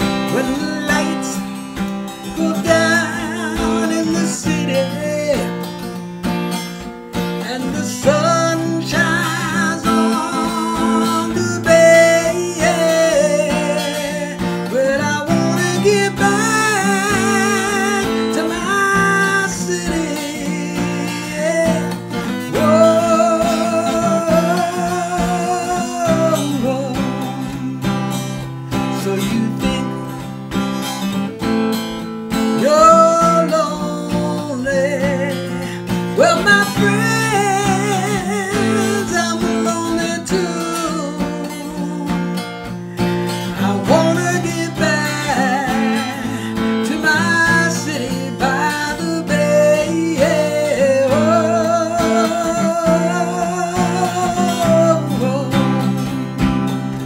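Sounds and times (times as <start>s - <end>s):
strummed acoustic guitar: 0.0s - 57.0s.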